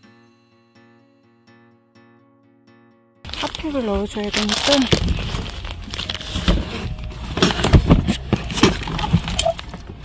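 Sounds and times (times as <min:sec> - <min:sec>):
crackling of dry leaves and twigs: 0:03.3 - 0:10.0.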